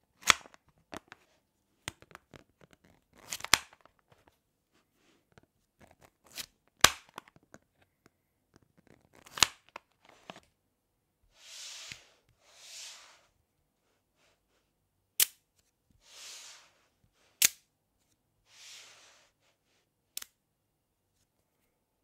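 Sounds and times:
soft rasping of sliding balls: 0:11.3 - 0:14.7, 0:15.9 - 0:17.4, 0:18.4 - 0:19.9
magnet balls snapping together: 0:15.2 - 0:15.4.

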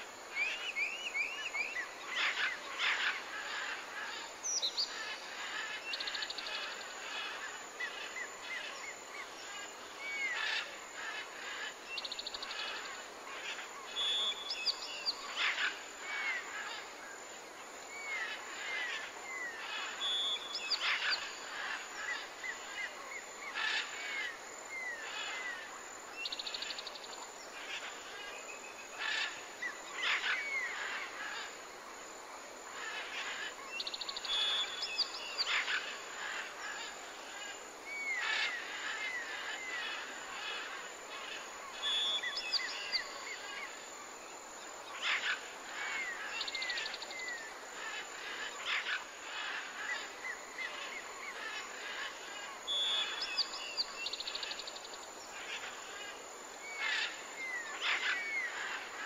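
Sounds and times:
faint steady hiss: 0:00.0 - 0:59.0
birds chirping and trilling: 0:18.0 - 0:31.5, 0:32.8 - 0:43.8, 0:44.8 - 0:59.0.

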